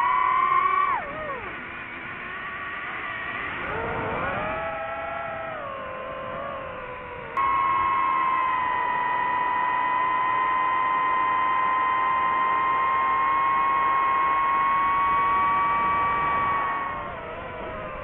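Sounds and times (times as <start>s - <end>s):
drone propellers whining: 0.0s - 18.0s.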